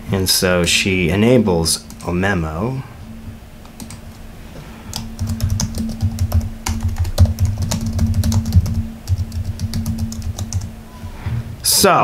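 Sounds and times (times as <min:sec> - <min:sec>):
typing on computer keyboard: 0:04.9 - 0:10.7.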